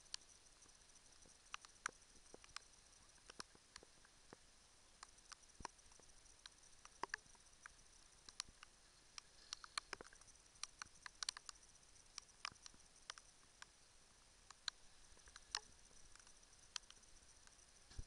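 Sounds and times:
faint clicks and ticks: 0.0s - 18.0s.

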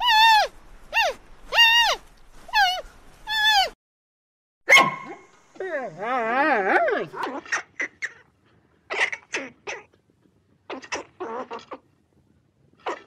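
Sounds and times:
high squeaky panda calls: 0.0s - 3.8s.

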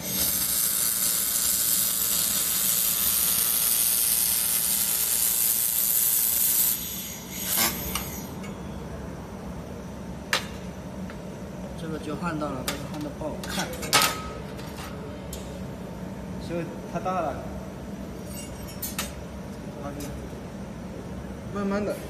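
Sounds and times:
laser welder hissing: 0.0s - 8.4s.

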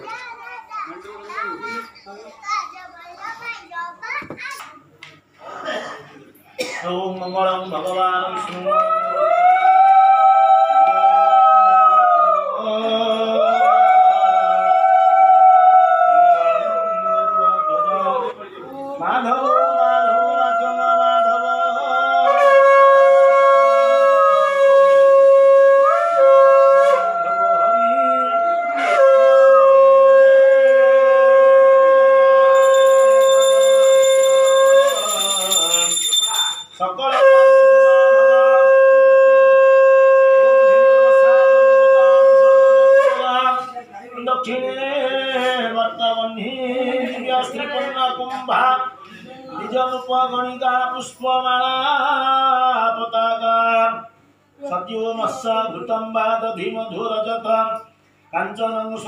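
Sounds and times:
conch shell blown: 22.3s - 27.2s, 28.8s - 43.1s.

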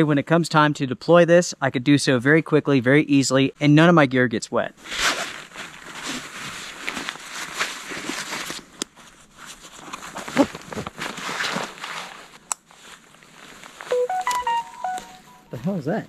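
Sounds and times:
fabric rustling: 4.8s - 14.1s.

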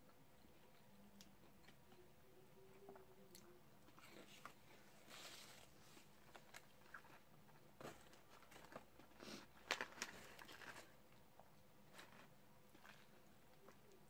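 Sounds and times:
paper wrapper rustling: 9.6s - 10.9s.

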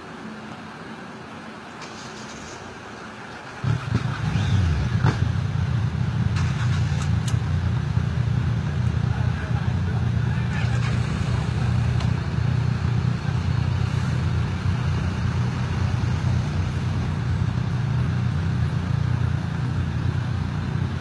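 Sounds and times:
vehicle engines idling: 0.0s - 21.0s.

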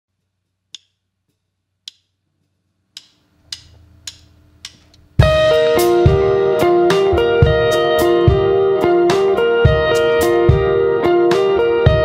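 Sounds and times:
drumsticks clicking together: 0.7s - 1.0s, 1.9s - 5.0s
rock band playing: 5.2s - 12.0s.

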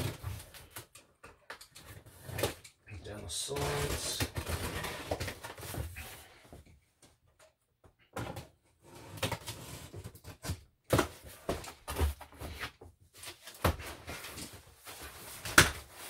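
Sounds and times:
cardboard scraping: 3.5s - 6.3s.

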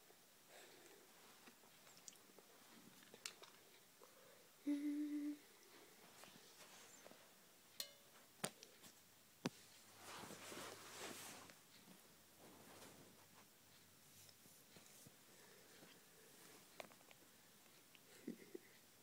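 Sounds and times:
soft rustle: 0.8s - 3.9s, 5.6s - 7.4s, 8.2s - 17.9s
person humming a note: 4.6s - 5.5s.

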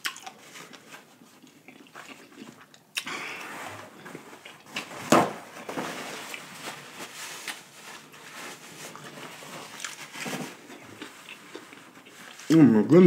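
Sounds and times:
paper rustling: 3.4s - 12.5s.

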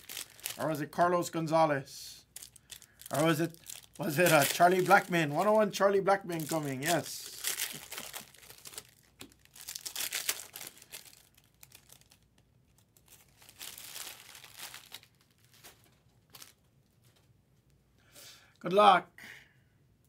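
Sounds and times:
foil wrapper tearing and crinkling: 0.0s - 0.8s, 2.4s - 5.6s, 6.2s - 16.6s.

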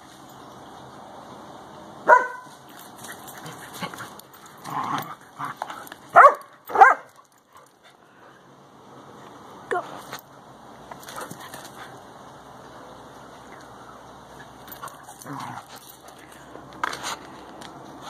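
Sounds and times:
dog barking: 2.1s - 2.5s, 6.2s - 7.1s.

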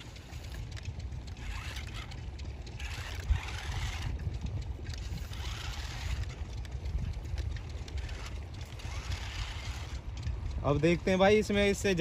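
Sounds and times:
electric motor whirring: 0.0s - 10.3s
wind on microphone: 0.0s - 12.0s.

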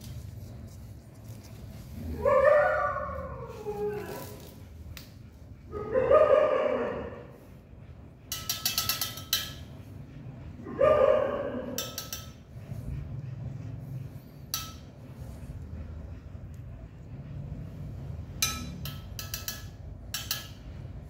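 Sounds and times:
dog howling in pain: 2.1s - 4.4s, 5.8s - 7.4s, 10.7s - 11.8s
forceps clinking in metal dish: 8.3s - 9.6s, 11.8s - 12.4s, 18.4s - 20.6s.

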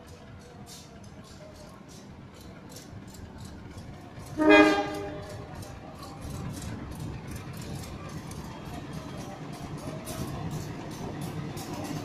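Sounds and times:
low rumble of train: 0.0s - 12.0s
locomotive horn blast: 4.4s - 5.4s.

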